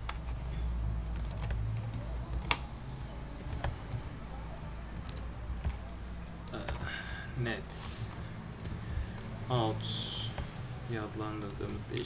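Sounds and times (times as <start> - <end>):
low steady hum: 0.0 - 12.0
keyboard key clicks: 1.1 - 7.8.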